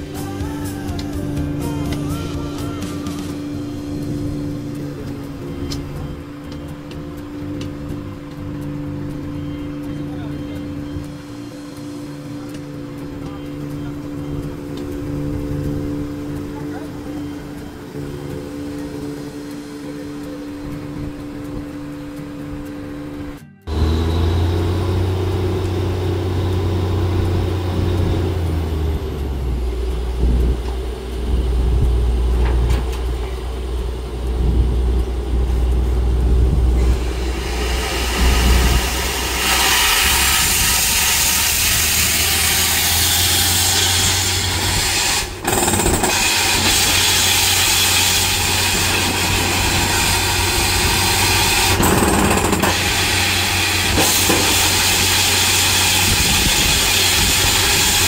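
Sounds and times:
drilling rig engine drone: 0.0s - 58.0s
loud rushing air hiss: 36.0s - 58.0s.

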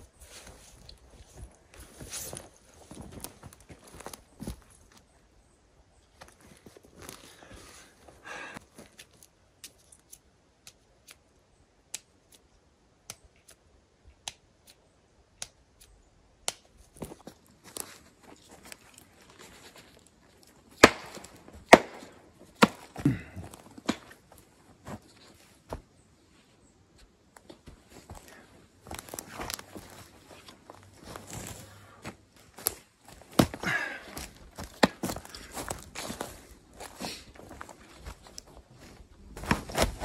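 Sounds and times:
footsteps on forest floor: 0.0s - 5.1s, 6.2s - 9.9s, 16.9s - 26.5s, 27.4s - 40.0s
twigs snapping: 14.2s - 24.3s, 27.4s - 31.6s, 32.4s - 40.0s.

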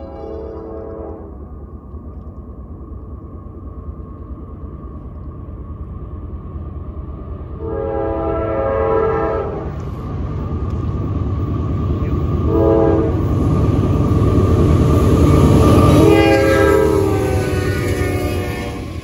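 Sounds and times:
train air horn blasts: 0.0s - 1.4s, 7.6s - 9.8s, 12.5s - 13.2s, 15.8s - 18.9s
locomotive rumble: 0.0s - 19.0s.

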